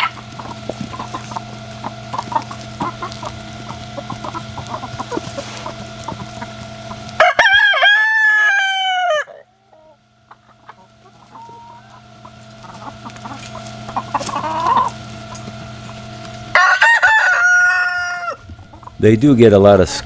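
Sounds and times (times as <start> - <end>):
rooster crowing: 0.0 - 0.2, 7.2 - 10.0, 16.4 - 18.5
chickens clucking: 0.0 - 20.0.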